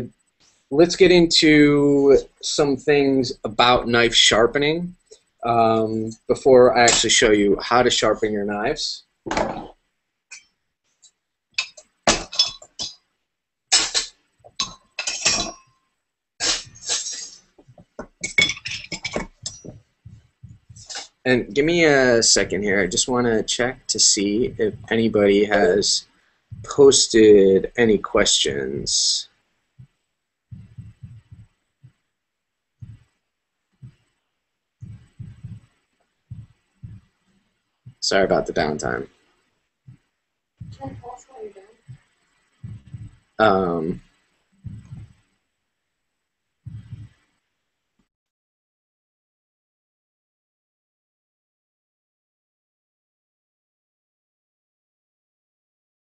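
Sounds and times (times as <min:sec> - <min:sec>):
hard objects clinking: 0:18.0 - 0:19.8.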